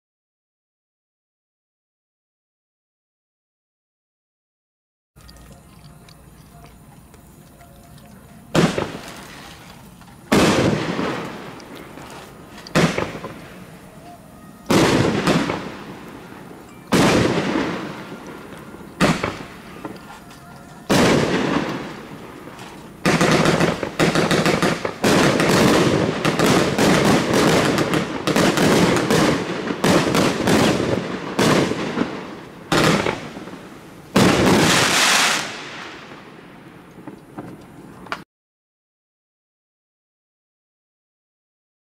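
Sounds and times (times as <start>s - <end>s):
firework cake bangs: 8.5s - 9.6s, 10.3s - 13.8s, 14.7s - 20.1s, 20.9s - 35.8s.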